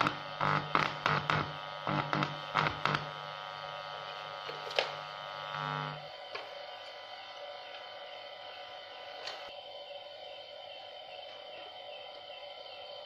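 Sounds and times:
loudspeaker hum with buzz: 0.0 - 6.5.

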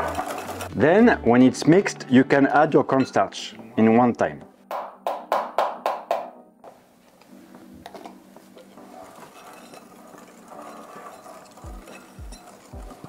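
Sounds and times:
whisk beating in glass bowl: 8.9 - 13.0.

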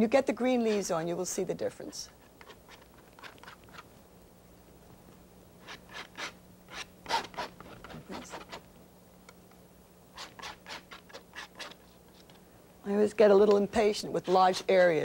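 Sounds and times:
palette knife scraping paint: 0.5 - 1.0, 2.4 - 3.8, 5.6 - 8.6, 10.2 - 12.3, 13.8 - 15.0.

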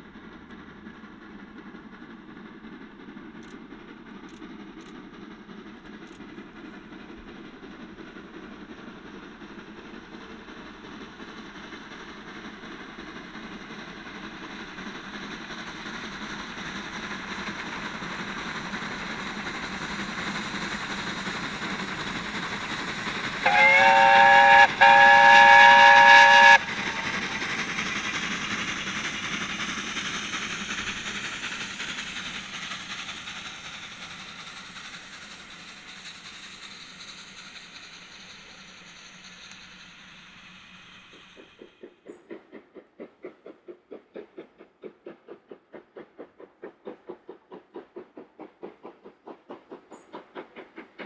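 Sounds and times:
train coaches rolling past: 0.0 - 51.0
steam locomotive whistle: 23.4 - 27.3.

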